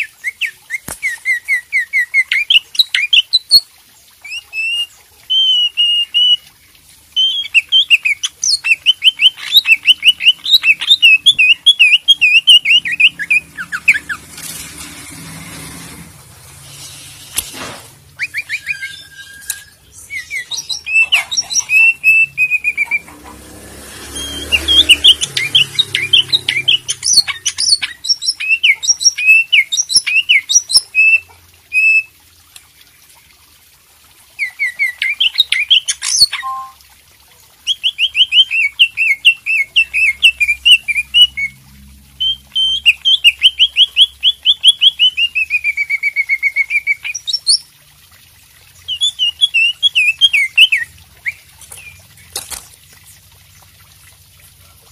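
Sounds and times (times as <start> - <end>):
bird singing whistled chirps: 7.2 - 14.0, 18.2 - 23.0, 48.9 - 52.0.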